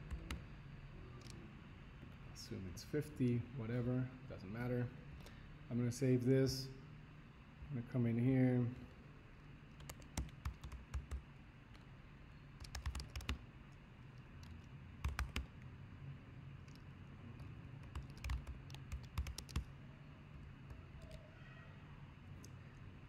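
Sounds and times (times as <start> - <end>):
computer keyboard typing: 0.0 - 0.4, 9.7 - 11.9, 12.6 - 13.4, 14.4 - 15.6, 16.6 - 19.7, 20.4 - 21.3
faint low hum: 0.0 - 23.0.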